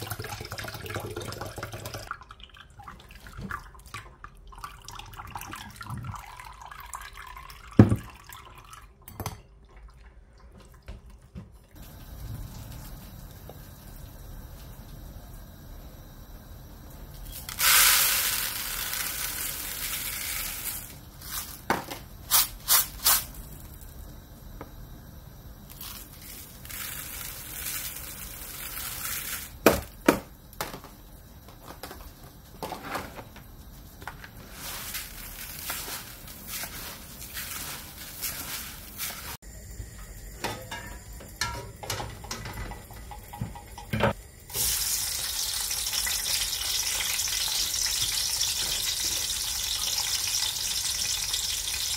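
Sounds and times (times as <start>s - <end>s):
onions sizzling in hot oil: 17.0s - 23.4s, 25.6s - 29.8s, 33.7s - 39.5s, 44.4s - 51.9s
rice poured into plastic bowl: 17.5s - 21.6s, 25.7s - 29.5s.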